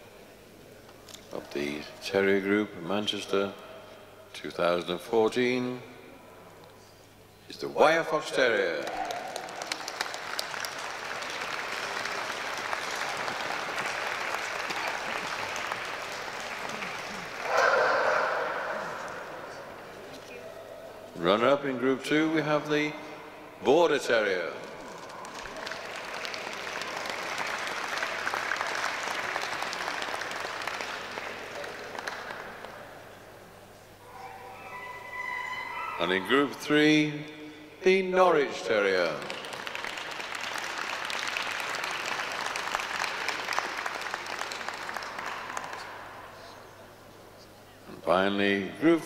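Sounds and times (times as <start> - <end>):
audience applauding: 8.7 - 19.8, 24.7 - 33.0, 38.7 - 46.6.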